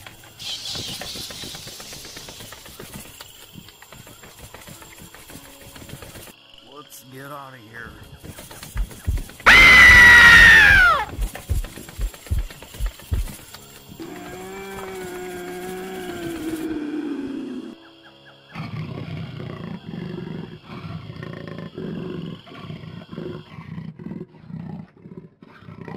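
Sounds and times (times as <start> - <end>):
animal-like roaring: 14.0 - 17.8.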